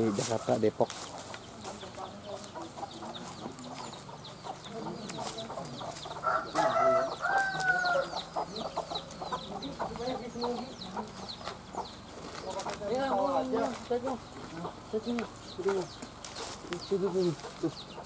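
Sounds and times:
footsteps on dry leaves: 0:00.0 - 0:18.0
small birds chirping: 0:00.0 - 0:18.0
rooster crowing: 0:06.1 - 0:08.8.

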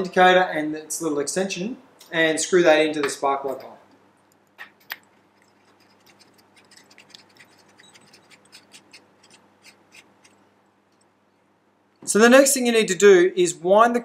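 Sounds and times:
metal threads ticking and scratching: 0:05.3 - 0:11.1.

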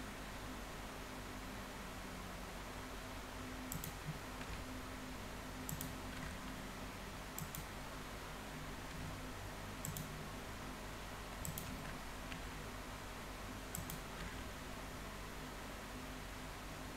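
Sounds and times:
mouse and keyboard clicks: 0:03.7 - 0:04.7, 0:05.7 - 0:06.6, 0:07.4 - 0:07.7, 0:09.8 - 0:10.2, 0:11.4 - 0:12.5, 0:13.7 - 0:14.5.

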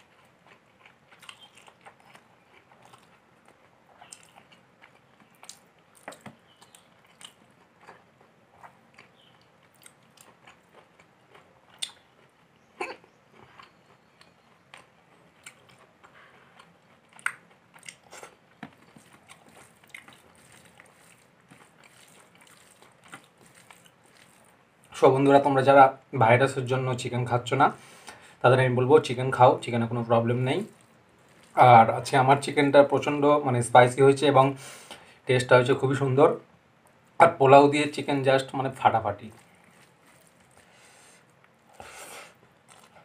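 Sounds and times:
chewing and mouth smacks: 0:00.0 - 0:25.0, 0:30.6 - 0:31.6, 0:39.2 - 0:43.0
fingers mixing rice on plate: 0:18.6 - 0:24.6, 0:38.7 - 0:40.8.

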